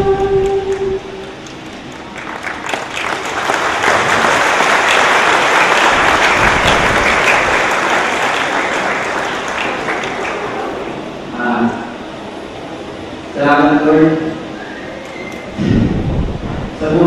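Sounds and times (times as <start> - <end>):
crowd applauding: 0.4 - 11.2.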